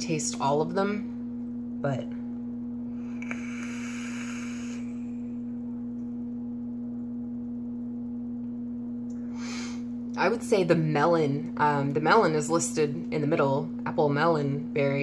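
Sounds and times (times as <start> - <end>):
low electrical hum: 0.0 - 15.0
e-cigarette air hiss: 3.0 - 5.4.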